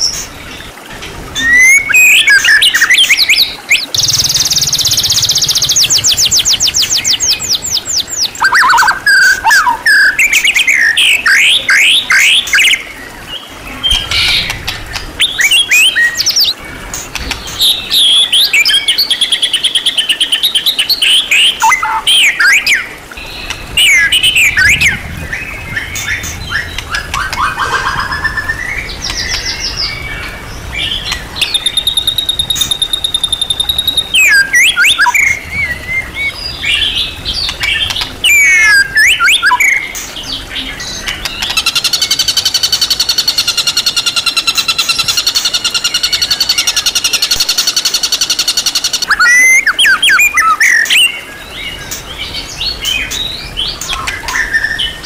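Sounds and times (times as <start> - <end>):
bird singing whistled phrases: 1.4 - 12.8, 21.3 - 22.9, 31.5 - 36.1, 38.2 - 39.9, 48.8 - 51.2.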